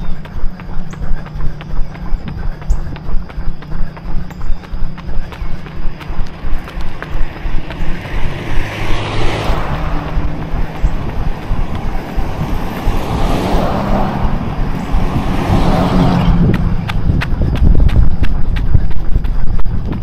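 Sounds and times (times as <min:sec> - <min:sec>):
cars passing close by: 0:00.0 - 0:18.3
runner's footsteps: 0:00.0 - 0:20.0.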